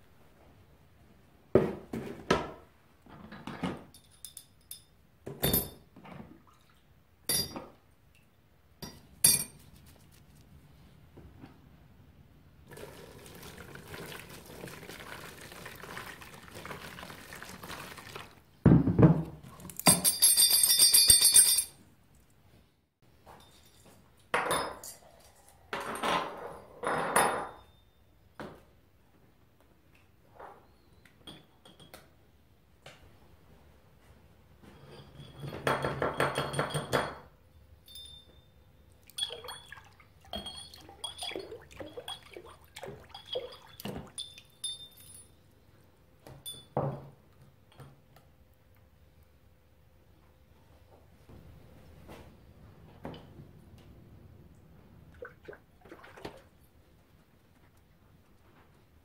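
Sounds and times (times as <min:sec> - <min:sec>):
water pouring: 0:12.7 - 0:18.6, 0:39.0 - 0:44.7, 0:55.1 - 0:56.6.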